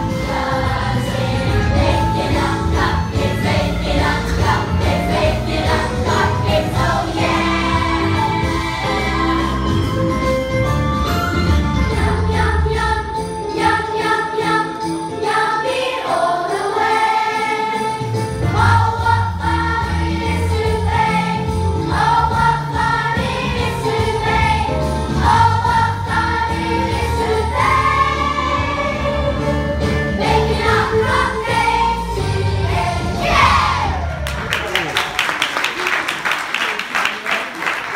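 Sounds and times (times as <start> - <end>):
children's choir singing: 0.0 - 10.0, 11.9 - 34.1.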